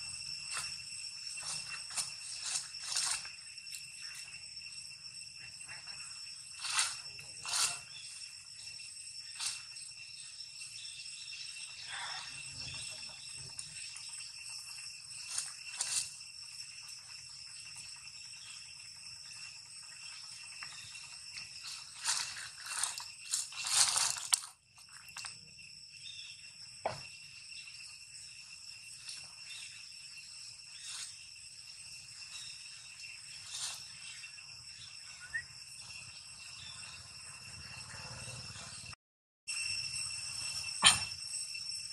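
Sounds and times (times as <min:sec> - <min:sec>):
high-pitched insect drone: 0:00.0 - 0:41.9
rustling and crunching: 0:21.6 - 0:25.3.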